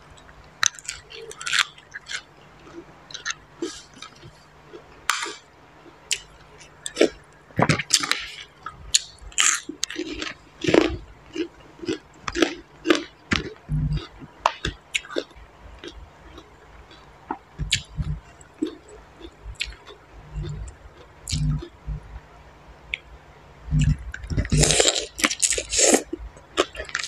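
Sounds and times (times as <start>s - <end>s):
person chewing crunchy food: 0.2s - 22.2s, 23.7s - 27.0s
low thumps: 13.6s - 14.3s, 17.6s - 18.3s, 23.7s - 24.7s.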